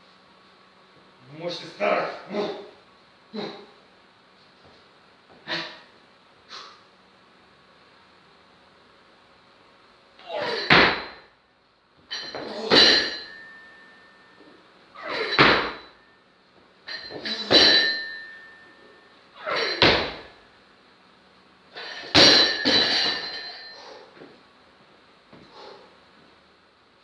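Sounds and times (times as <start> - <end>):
barbell thudding on platform: 10.5 - 11.2, 12.1 - 13.4, 15.2 - 15.9, 16.9 - 18.3, 19.6 - 20.3, 22.0 - 23.5
metallic ring of bar: 12.1 - 14.5, 16.9 - 20.4, 21.8 - 24.0.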